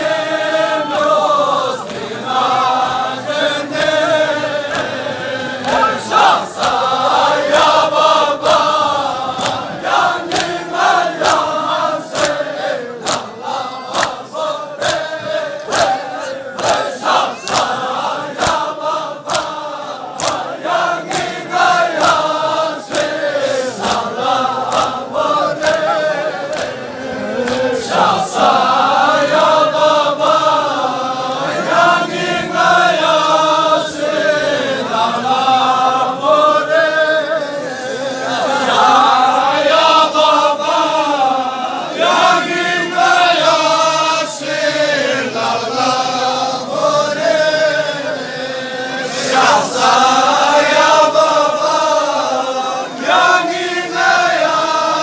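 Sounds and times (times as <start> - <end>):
men chanting a lament: 0.0 - 55.0
sharp slaps in a beat: 6.6 - 6.9, 8.4 - 26.8.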